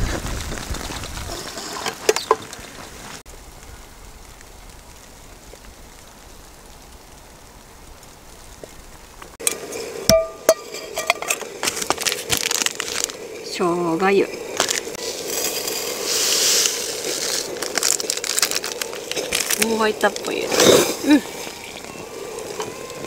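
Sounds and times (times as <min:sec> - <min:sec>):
camp stove hissing: 0:01.3 - 0:03.3, 0:09.3 - 0:23.0.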